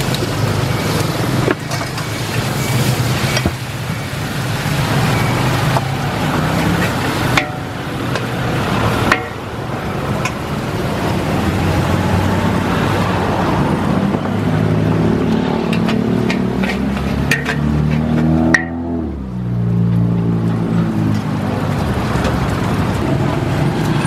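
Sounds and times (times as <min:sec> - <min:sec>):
noodles sizzling in wok: 0:00.0 - 0:11.9
spatula scraping wok: 0:00.8 - 0:09.4, 0:15.3 - 0:18.6.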